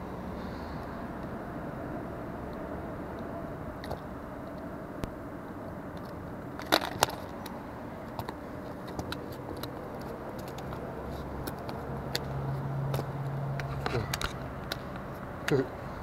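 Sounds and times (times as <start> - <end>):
low background rumble: 0.0 - 16.0
fishing gear clicking and rattling: 6.0 - 15.2.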